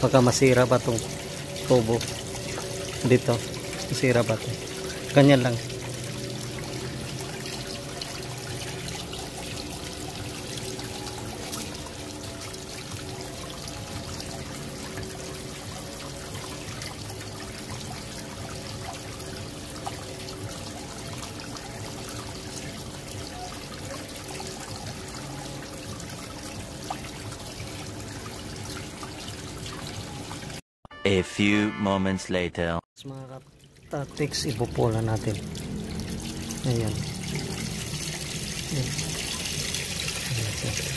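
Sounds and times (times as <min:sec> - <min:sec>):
water splashing onto concrete: 0:33.6 - 0:40.9.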